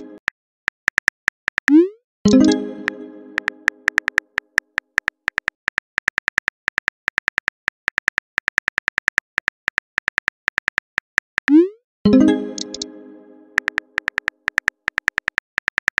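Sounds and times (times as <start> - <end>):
virtual keyboard clicks: 0.0 - 12.9, 13.6 - 16.0.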